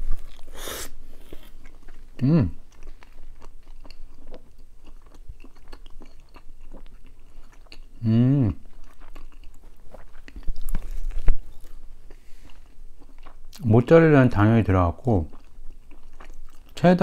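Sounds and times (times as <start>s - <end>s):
chewing pizza crust: 0.0s - 17.0s
person humming: 2.2s - 2.6s, 8.0s - 8.6s.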